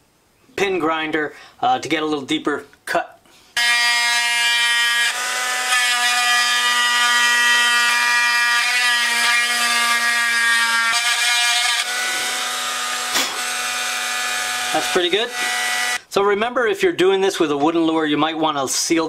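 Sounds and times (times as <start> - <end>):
rotary tool grinding whine: 3.6 - 16.0.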